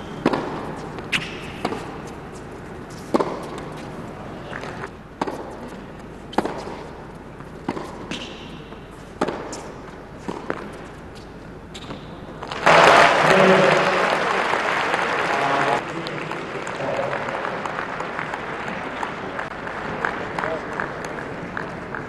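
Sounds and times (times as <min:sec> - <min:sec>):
ball bouncing on hard court: 0:00.2 - 0:02.0, 0:03.1 - 0:03.7, 0:05.2 - 0:06.9, 0:07.6 - 0:10.9
tennis ball struck by rackets: 0:00.2 - 0:02.0, 0:03.0 - 0:03.8, 0:05.2 - 0:07.0, 0:07.6 - 0:10.9
applause: 0:12.5 - 0:22.0.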